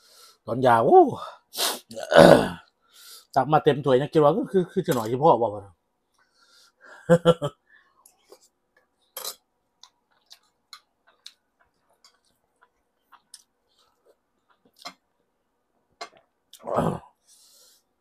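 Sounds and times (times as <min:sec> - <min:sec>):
man chewing food: 0:08.0 - 0:16.6.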